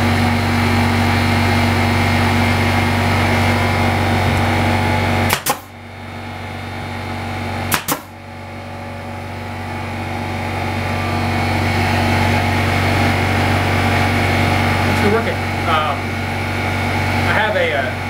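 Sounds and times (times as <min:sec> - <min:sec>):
air compressor humming: 0:00.0 - 0:18.0
nail gun double clack: 0:05.3 - 0:05.7, 0:07.7 - 0:08.1.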